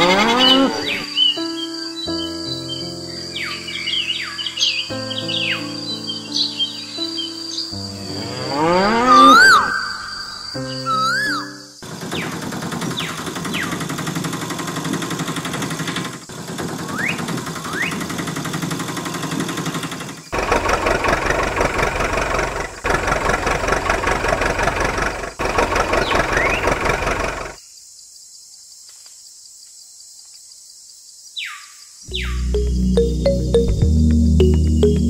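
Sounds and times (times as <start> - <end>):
short rising chirps: 9.0 - 11.7
diesel engine knocking: 11.8 - 27.6.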